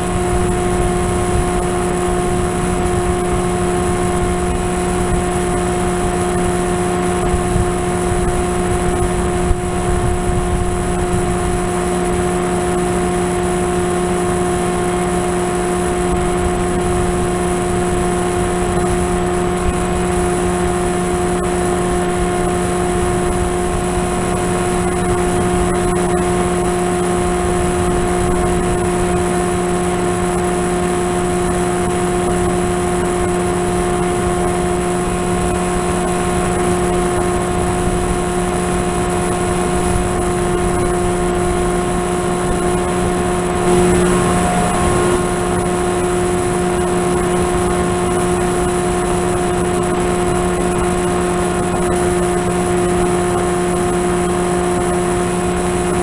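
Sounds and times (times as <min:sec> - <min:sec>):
wind noise: 0:00.0 - 0:12.6, 0:34.1 - 0:54.0
model aircraft motor and propeller: 0:00.0 - 0:56.0.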